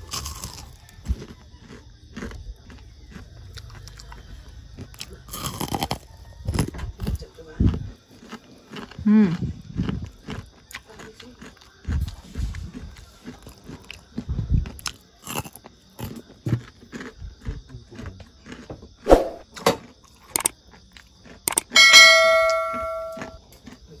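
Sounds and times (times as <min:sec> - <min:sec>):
crunching and chewing: 0:00.0 - 0:22.4, 0:23.2 - 0:24.0
bell-like ding: 0:21.7 - 0:23.4.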